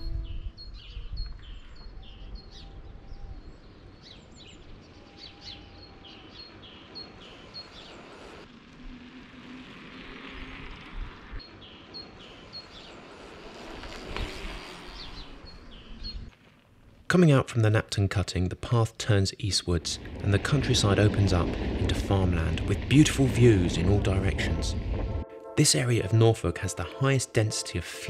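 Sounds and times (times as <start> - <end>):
songbird singing two-note phrase: 0.0 - 1.3
low outdoor rumble: 19.6 - 25.3.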